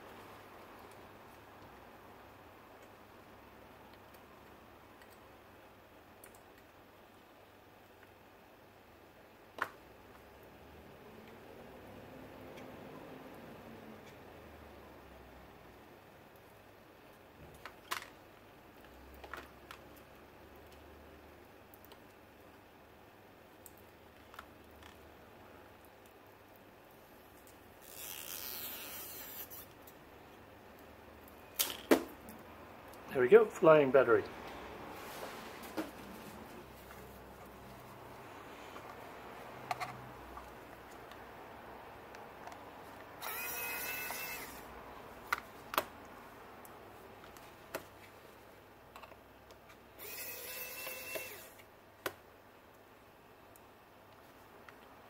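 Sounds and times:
plastic card scraping adhesive: 27.8s - 29.8s
electric screwdriver motor whine: 43.2s - 44.6s, 50.0s - 51.6s.

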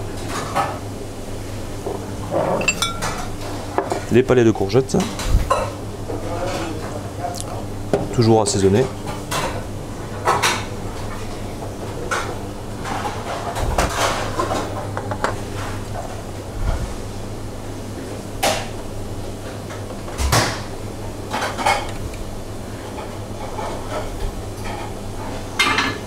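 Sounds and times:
steady low hum: 0.0s - 25.6s
utensils and dishes clinking: 1.9s - 4.1s.

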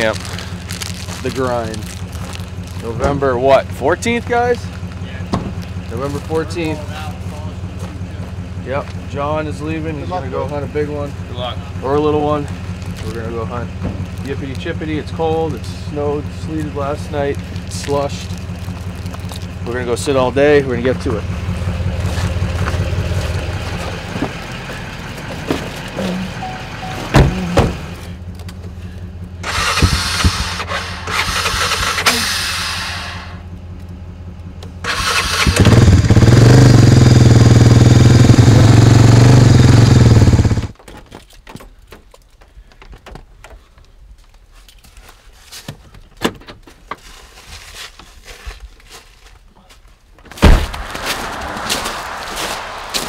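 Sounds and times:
atv engine running loud: 0.0s - 40.8s
vehicle engine idling low: 0.0s - 40.8s, 50.7s - 53.0s
thump: 5.3s - 5.6s, 27.1s - 27.8s, 50.3s - 52.0s.

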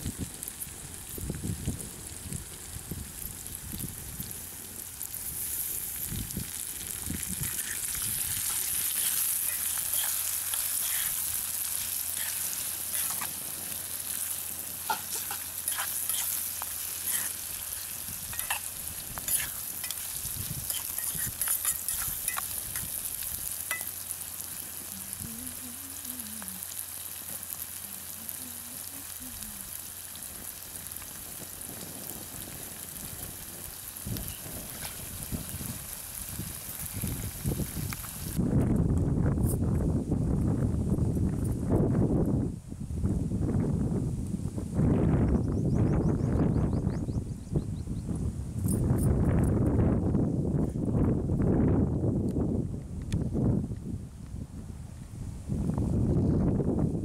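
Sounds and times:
food sizzling in oil: 0.0s - 38.4s
metal spoon scraping a pot: 8.9s - 11.2s, 14.9s - 16.4s, 17.0s - 17.4s, 18.3s - 18.7s, 19.3s - 20.0s, 20.6s - 22.9s.

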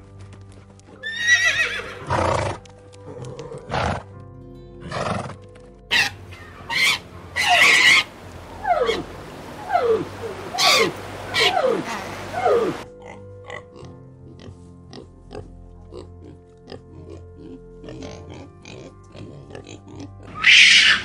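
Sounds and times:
horses neighing: 1.0s - 4.1s, 5.9s - 12.9s
soft piano music: 2.0s - 20.3s
penguins calling: 5.9s - 12.8s.

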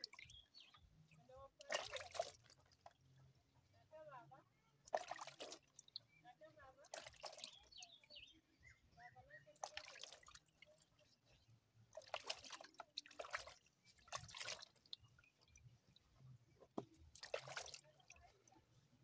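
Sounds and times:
water splashing in plastic basin: 1.5s - 3.0s, 4.8s - 8.0s, 9.6s - 10.9s, 11.9s - 15.6s, 16.7s - 18.5s.

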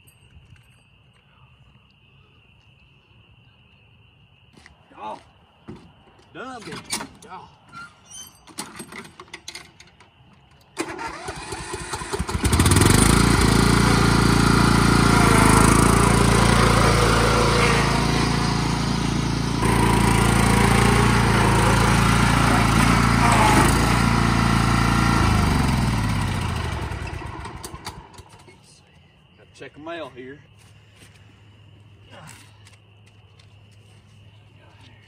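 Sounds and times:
riding lawn mower engine running: 10.8s - 28.5s.

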